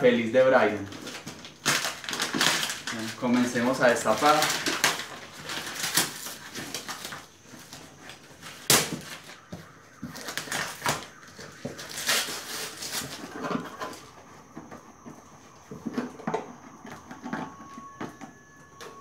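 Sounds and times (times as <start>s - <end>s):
cardboard and paper rustling: 0.8s - 18.0s
packing tape ripping: 1.0s - 3.5s, 4.1s - 7.8s, 11.8s - 13.3s.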